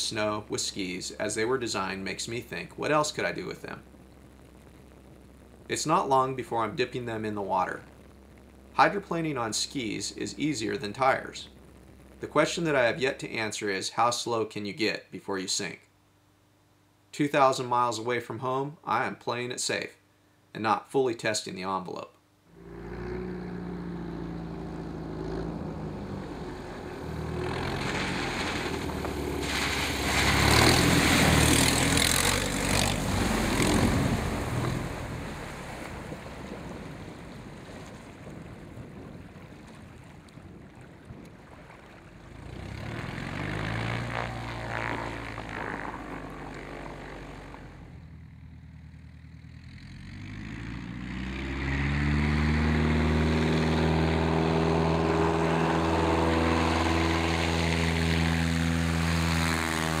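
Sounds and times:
plane engine and propeller: 22.6 - 60.0
skis hissing across water spray: 27.3 - 35.9.

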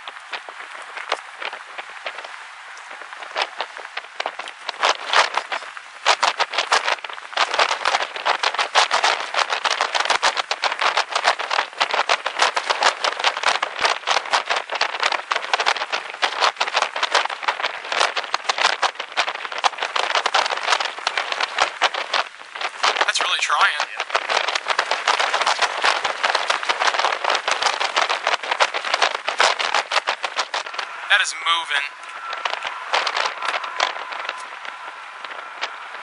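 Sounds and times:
rain pattering on a vehicle: 0.0 - 36.0.

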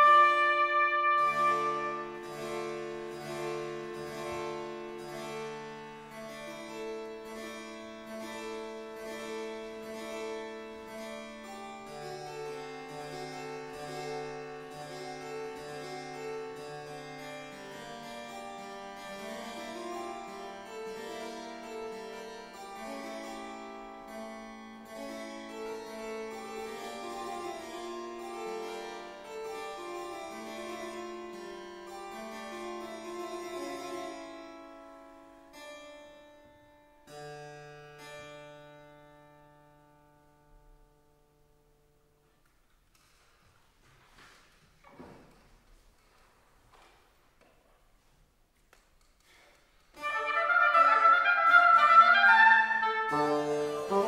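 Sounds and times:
bassoon low line: 0.0 - 3.9, 50.0 - 54.0
harpsichord plucked notes: 0.0 - 39.2, 50.0 - 54.0.

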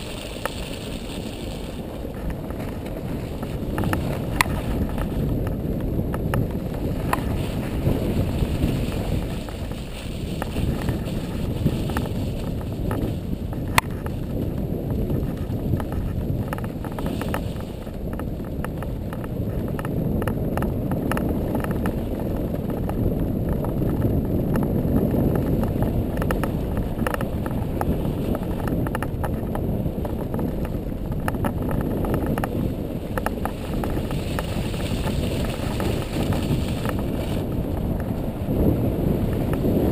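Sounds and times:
atv engine and tyres rumbling: 0.0 - 39.9
wind buffeting microphone: 0.0 - 39.9.

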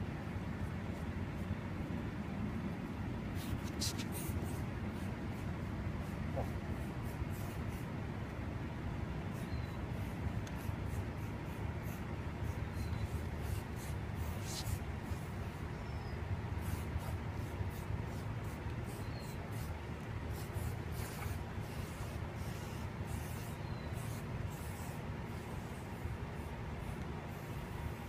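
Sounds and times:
steady low rumble: 0.0 - 28.0
spray paint can hissing: 13.4 - 15.2, 20.3 - 26.0.

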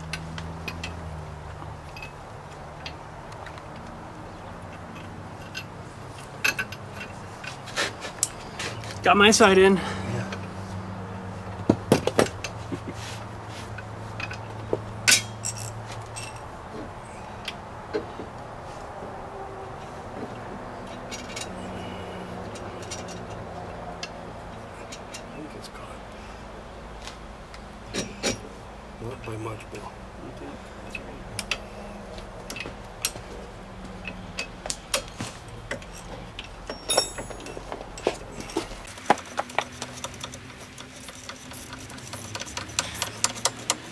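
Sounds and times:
metal tools and bolts clinking: 0.0 - 3.9, 4.6 - 9.4, 11.9 - 12.7, 13.7 - 16.5, 20.8 - 25.4, 27.9 - 29.8, 30.8 - 43.9
metal tool clink: 14.2 - 16.5, 35.7 - 43.9
ratchet wrench clicking: 38.8 - 43.9.

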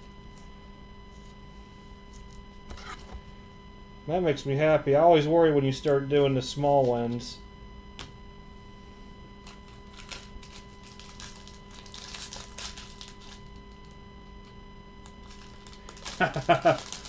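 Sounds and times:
plastic sleeve crinkling: 9.4 - 14.0, 15.0 - 17.0.

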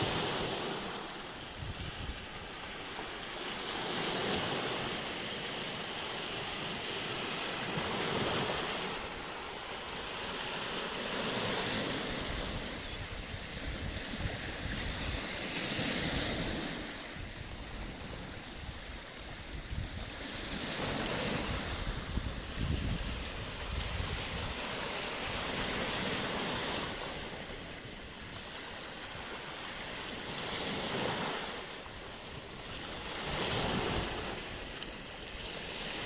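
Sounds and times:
wind buffeting microphone: 0.0 - 2.7, 11.5 - 28.6
waves on pebble beach: 0.0 - 36.0.

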